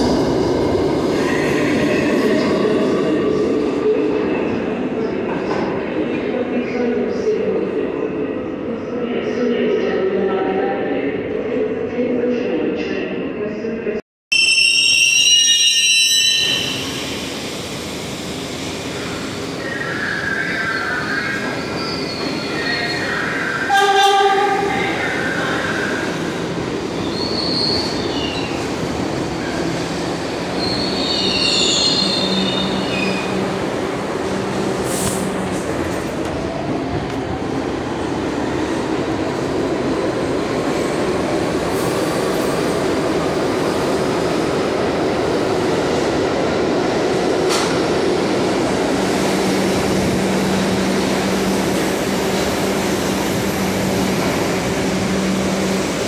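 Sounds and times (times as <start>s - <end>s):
subway train wheels rumbling on rails: 0.0s - 13.2s, 16.4s - 56.0s.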